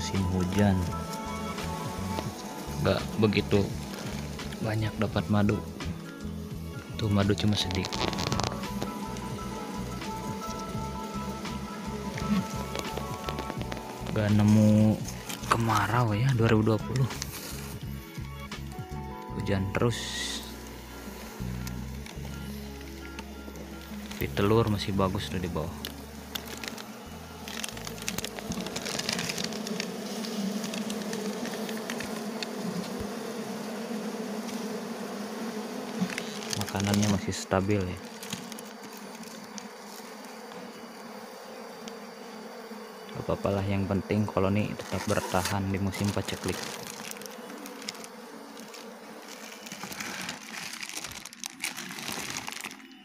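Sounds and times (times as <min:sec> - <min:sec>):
bees buzzing: 0:00.0 - 0:53.0
plastic sheeting crinkling: 0:07.4 - 0:09.0, 0:25.8 - 0:32.7, 0:35.9 - 0:40.2, 0:44.8 - 0:53.0.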